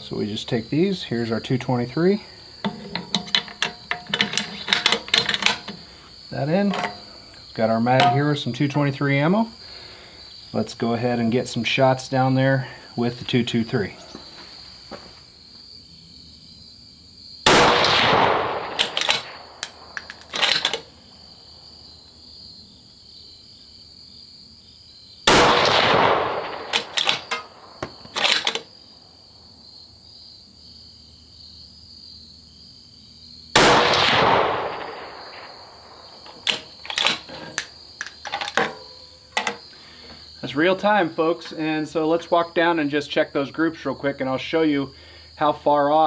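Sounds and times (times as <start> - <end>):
crickets chirring: 0.0 - 46.0
rifle bolt metallic clicks: 2.7 - 5.8, 6.7 - 7.0, 18.8 - 20.8, 26.7 - 27.5, 28.1 - 28.6, 36.3 - 39.6
rifle shots: 17.5 - 19.4, 25.3 - 27.5, 33.6 - 35.5.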